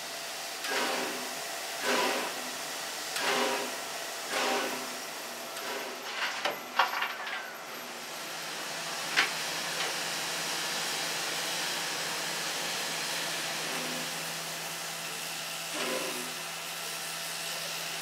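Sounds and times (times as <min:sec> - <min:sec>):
steam hissing: 0:00.6 - 0:05.0, 0:10.0 - 0:18.0
sharp metallic clanks: 0:06.1 - 0:07.6.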